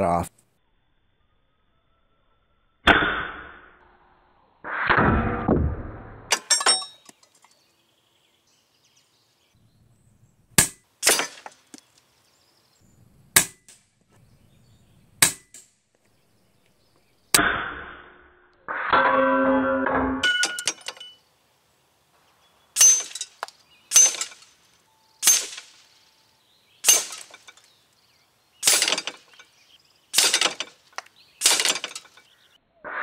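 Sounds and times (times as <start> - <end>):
pellets clanking on steel targets: 6.3 - 7.4, 10.6 - 11.8, 19.0 - 21.2, 22.8 - 26.1, 26.8 - 27.8, 28.6 - 32.4
air rifle shots cracking: 25.2 - 26.0, 28.6 - 29.4, 30.1 - 32.0.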